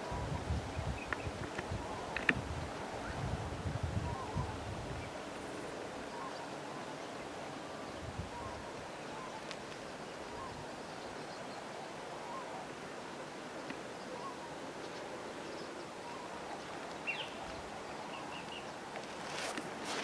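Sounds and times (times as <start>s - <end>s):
steady soft hiss: 0.0s - 20.0s
birds calling: 4.0s - 19.2s.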